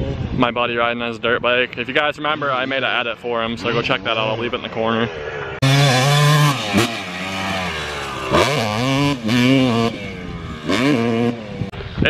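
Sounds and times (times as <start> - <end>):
dirt bike engine revving: 5.1 - 12.0.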